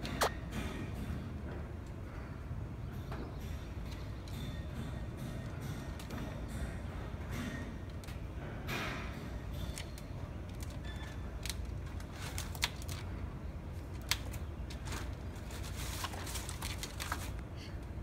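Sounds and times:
paper and trash rustling: 11.4s - 13.1s, 13.9s - 17.4s.

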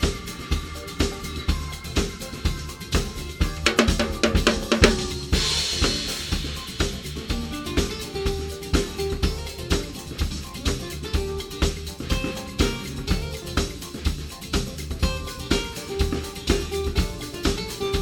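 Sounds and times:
acoustic guitar smooth jazz: 0.0s - 18.0s
drum kit playing samba groove: 0.0s - 18.0s
cymbal crash: 3.5s - 8.9s.

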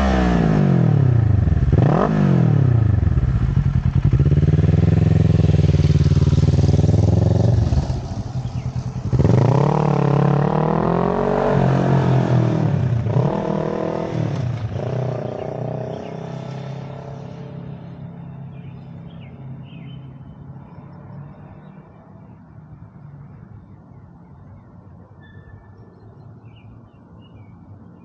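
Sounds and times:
motorcycle engine revving away: 0.0s - 18.7s.

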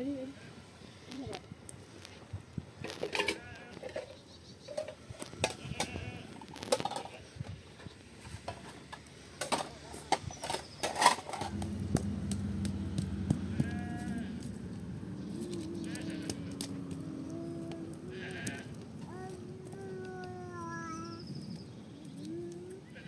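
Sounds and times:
livestock bleating: 3.2s - 3.9s, 5.5s - 6.4s, 11.6s - 18.8s
sharp knocks and clatter: 9.4s - 17.0s
steady low hum: 11.2s - 20.4s.

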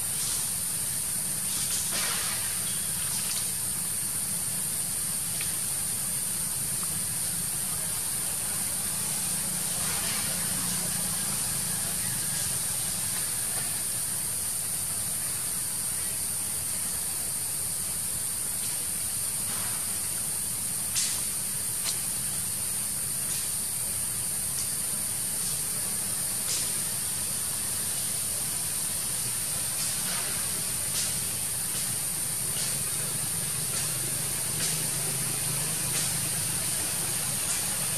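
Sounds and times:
insects droning: 0.0s - 37.9s.

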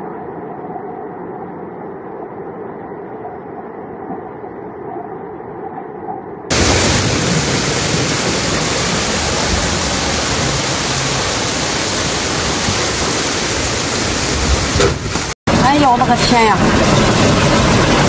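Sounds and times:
floodwater rushing: 6.5s - 18.0s.

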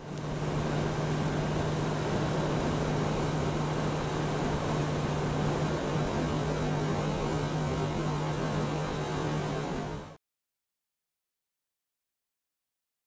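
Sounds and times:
motorcycle engine drone: 0.0s - 10.2s.

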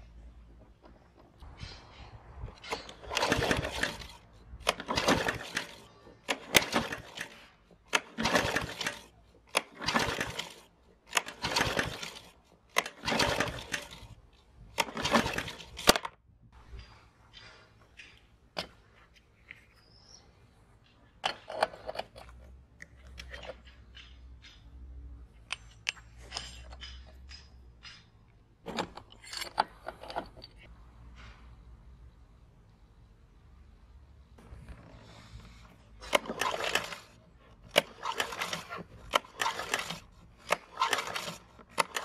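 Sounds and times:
recoil starter pull whirring: 2.5s - 16.2s, 34.7s - 42.0s
mower engine turning over: 2.6s - 16.2s, 34.7s - 42.0s.

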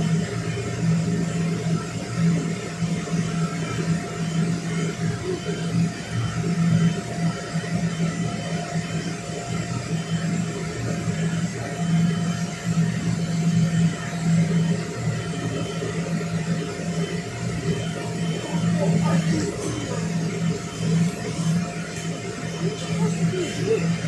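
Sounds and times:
electric blower fan whirring: 0.0s - 24.0s.

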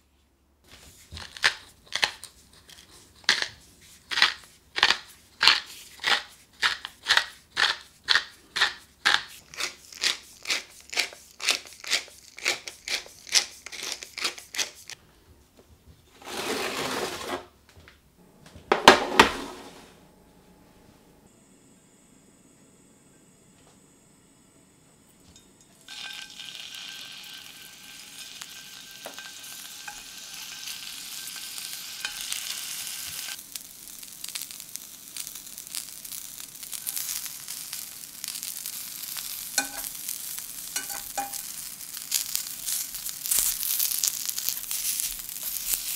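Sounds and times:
pepper mill grinding: 1.0s - 15.0s, 25.8s - 45.9s.

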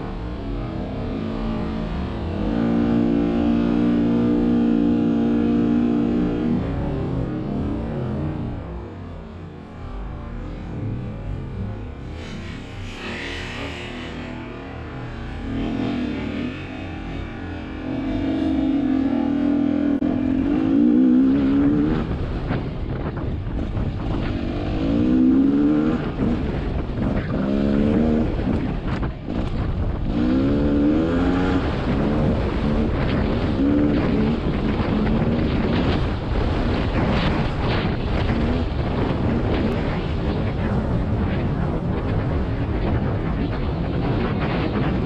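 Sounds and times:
two-stroke dirt bike engine revving: 30.1s - 36.0s.

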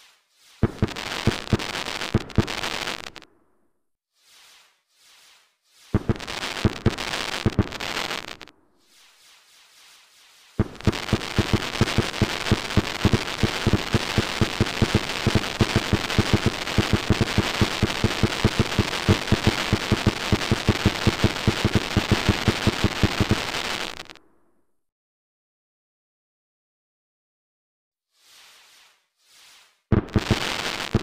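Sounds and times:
fireworks bangs: 0.0s - 3.3s, 5.8s - 24.2s, 29.9s - 31.0s
fireworks crackle: 0.0s - 3.3s, 4.2s - 24.2s, 28.2s - 31.0s.

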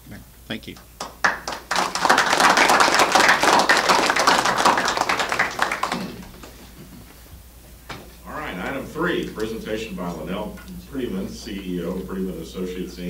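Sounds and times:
audience applauding: 0.8s - 7.1s.

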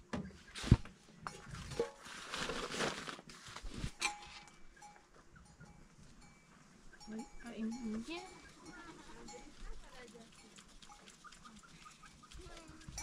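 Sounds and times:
plastic tarp rustling: 1.6s - 4.4s
livestock bells clinking: 4.0s - 13.0s.

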